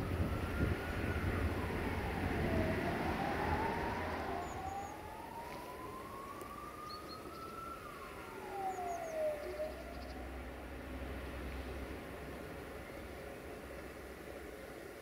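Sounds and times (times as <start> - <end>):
siren wailing: 0.0 - 10.7.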